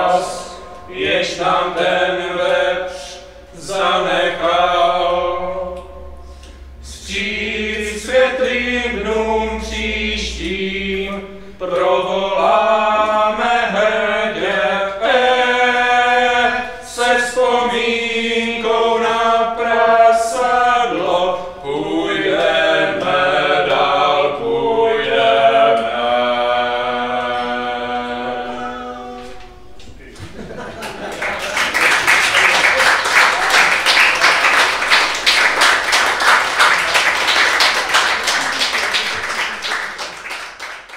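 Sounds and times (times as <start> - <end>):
men singing slow chant: 0.0 - 29.5.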